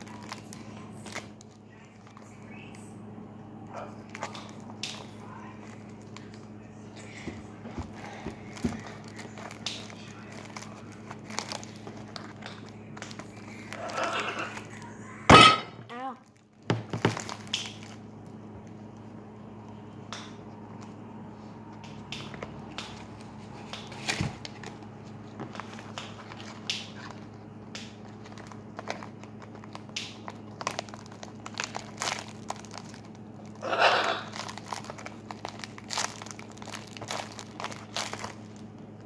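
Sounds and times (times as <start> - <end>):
plastic wrapping crinkling: 0.0 - 2.8, 7.6 - 15.0, 15.9 - 19.8, 22.2 - 39.0
steady low hum: 0.0 - 39.0.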